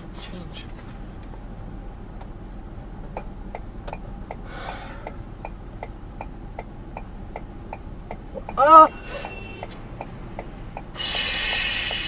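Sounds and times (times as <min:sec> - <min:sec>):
low cabin rumble: 0:00.0 - 0:12.0
turn signal clicking: 0:01.2 - 0:12.0
short hiss: 0:11.0 - 0:12.0.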